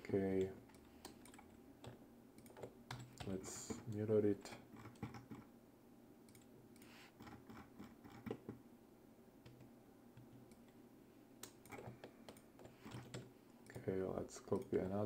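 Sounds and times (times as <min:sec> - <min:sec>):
keyboard key presses: 0:11.4 - 0:13.8.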